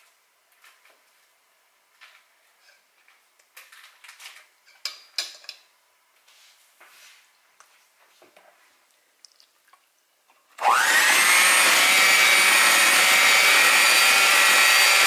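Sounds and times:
electric hand mixer whine: 0:10.6 - 0:15.0.

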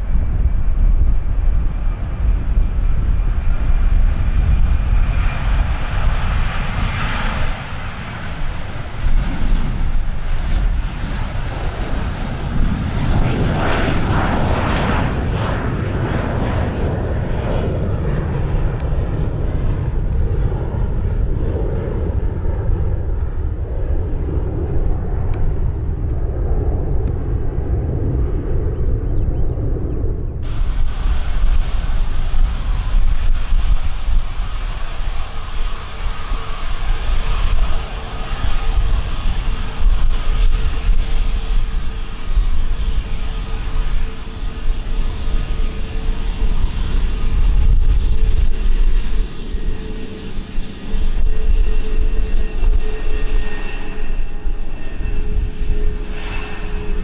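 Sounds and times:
jet airliner taking off: 0:00.0 - 0:57.0.

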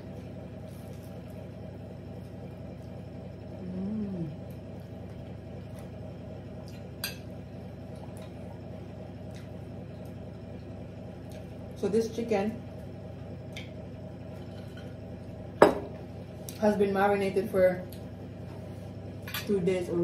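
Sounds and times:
steady low hum: 0:00.0 - 0:20.0
quiet eating: 0:02.2 - 0:05.9
person humming: 0:03.6 - 0:04.5.

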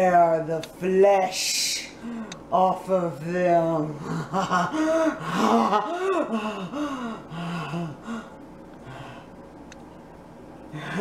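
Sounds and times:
woman gasping: 0:04.0 - 0:09.3.

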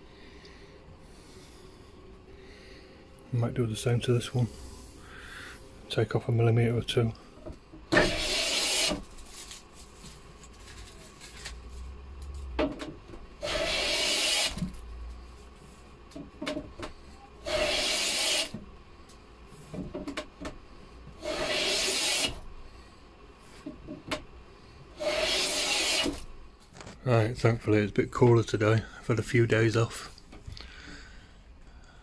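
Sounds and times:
hand plane shaving wood: 0:08.0 - 0:09.0, 0:13.4 - 0:14.6, 0:17.4 - 0:18.6, 0:21.2 - 0:22.4, 0:25.0 - 0:26.2.

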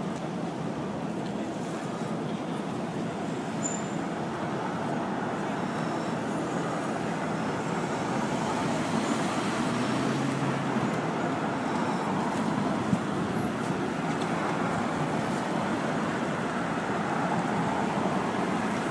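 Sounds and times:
city street traffic: 0:00.0 - 0:18.9.

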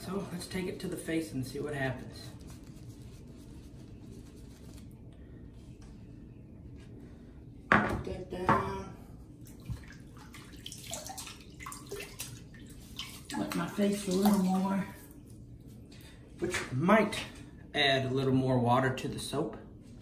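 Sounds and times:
low room hum: 0:00.0 - 0:20.0
water splashing onto face: 0:09.5 - 0:14.8.

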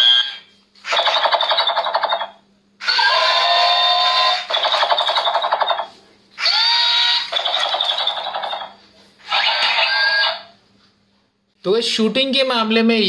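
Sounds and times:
toy gunfire sound effect: 0:00.1 - 0:10.5.

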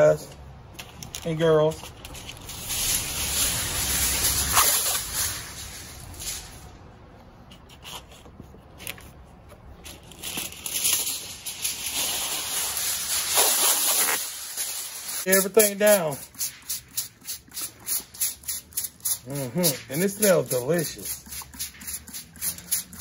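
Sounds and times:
aluminium foil crinkling: 0:01.8 - 0:06.8, 0:09.7 - 0:23.0.

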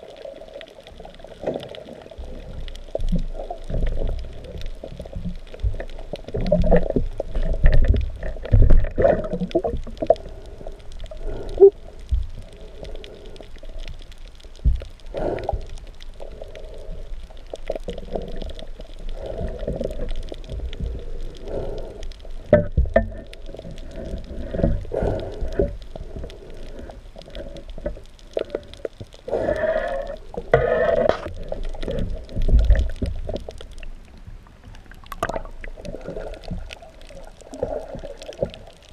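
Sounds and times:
water swirling and gurgling: 0:00.0 - 0:38.9.

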